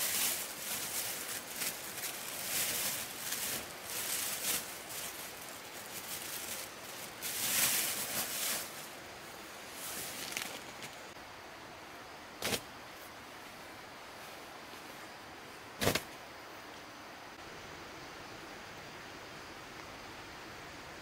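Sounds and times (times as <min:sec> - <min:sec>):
tent fabric rustling: 0:00.0 - 0:09.0, 0:09.6 - 0:11.2.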